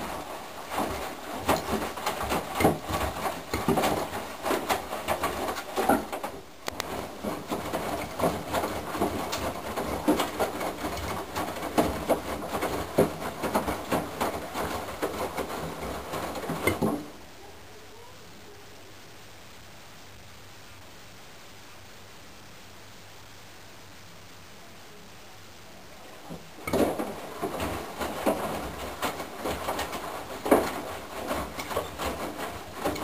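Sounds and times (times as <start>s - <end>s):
clicks and knocks: 0.0s - 17.2s, 26.3s - 33.0s
washing machine drum tumbling: 0.0s - 17.2s, 26.2s - 33.0s.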